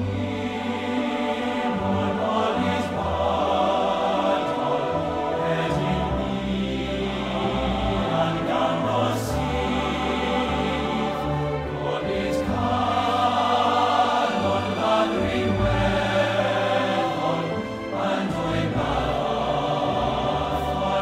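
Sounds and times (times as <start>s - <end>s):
slow choral music: 0.0s - 21.0s.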